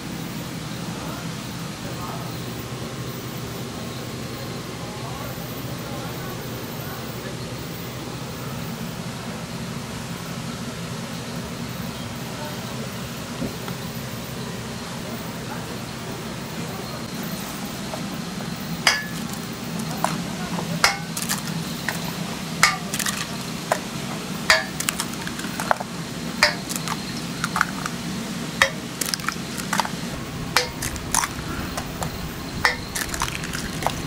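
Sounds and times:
steady low hum: 0.0s - 34.0s
eggs cracking against steel bowl: 18.9s - 34.0s.

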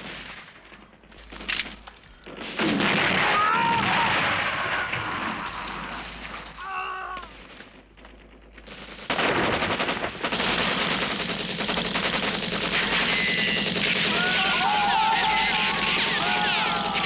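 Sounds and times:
machine-gun fire: 0.0s - 6.6s, 7.3s - 17.0s
explosion: 2.5s - 6.6s.

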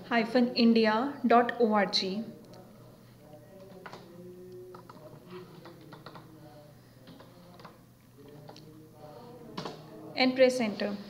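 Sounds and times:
computer keyboard key clicks: 5.6s - 6.2s.

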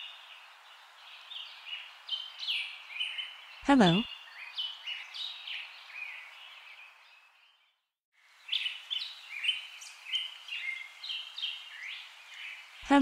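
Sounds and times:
small birds chirping: 0.0s - 13.0s
light hiss: 8.2s - 12.9s.

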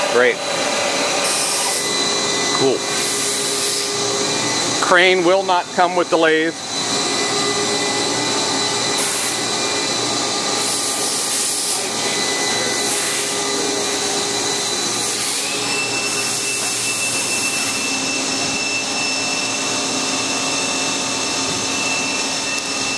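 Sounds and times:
machine hiss: 0.0s - 4.4s, 8.8s - 9.6s, 10.5s - 19.0s
milling motor whine: 0.0s - 22.9s.

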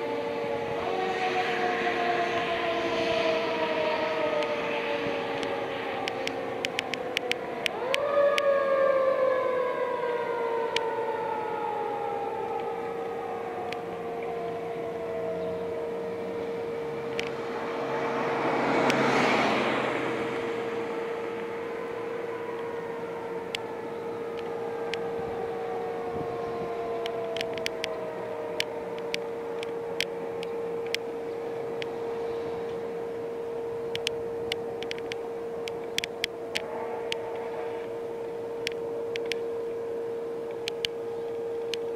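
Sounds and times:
mechanical siren wailing: 0.0s - 41.9s
broad rush of noise: 10.8s - 41.9s.

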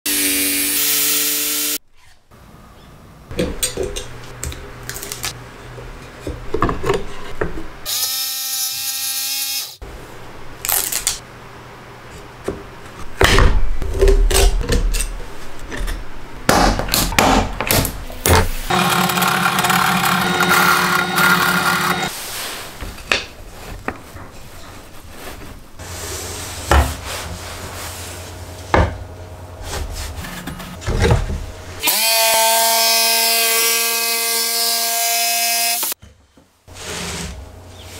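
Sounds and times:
jigsaw cutting plywood: 18.7s - 22.1s.

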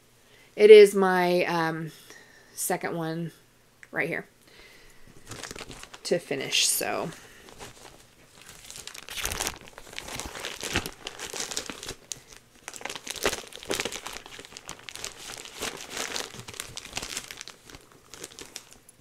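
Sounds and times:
wrapping crinkling and rustling: 5.0s - 19.0s.

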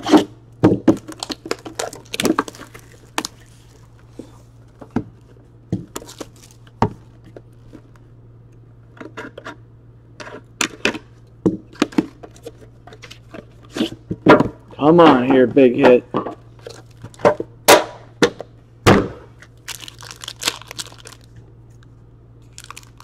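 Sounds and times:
low steady hum: 0.0s - 23.0s
shrink wrap crinkling: 1.0s - 4.8s, 5.9s - 8.0s, 16.6s - 17.2s, 19.4s - 23.0s.

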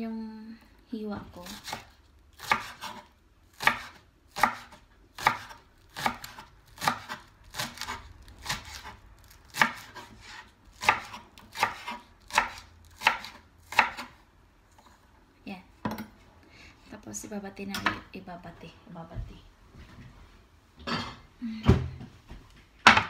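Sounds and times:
knife chopping on wooden board: 1.4s - 14.2s.

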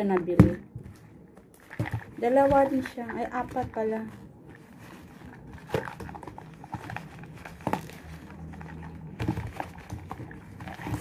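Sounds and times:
paper bag rustling: 1.1s - 11.0s
boxes knocking and tapping: 1.6s - 4.1s, 8.8s - 11.0s.

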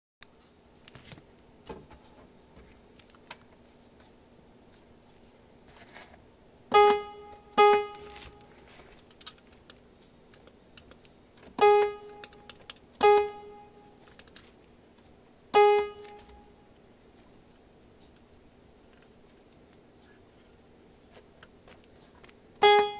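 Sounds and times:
synth piano notes: 22.6s - 22.9s.

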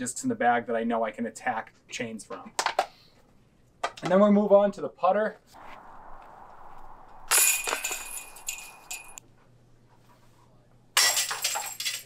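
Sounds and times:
metal chains jingling: 7.3s - 9.2s.

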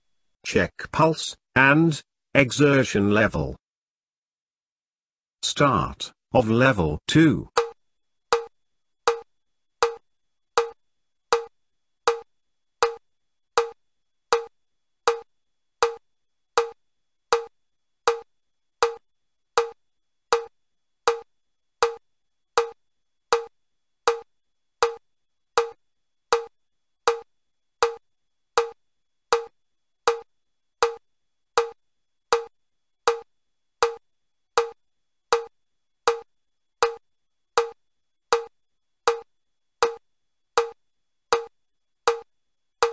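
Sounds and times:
metronome ticking: 7.6s - 8.5s, 9.1s - 10.0s, 10.6s - 11.5s, 12.1s - 13.0s, 13.6s - 14.5s, 15.1s - 16.0s, 16.6s - 17.5s, 18.1s - 19.0s, 19.6s - 20.5s, 21.1s - 22.0s, 22.6s - 23.5s, 24.1s - 25.0s, 25.6s - 26.5s, 27.1s - 28.0s, 28.6s - 31.0s, 31.6s - 32.5s, 33.1s - 34.0s, 34.6s - 37.0s, 37.6s - 38.5s, 39.1s - 40.0s, 40.6s - 41.5s, 42.1s - 42.9s.

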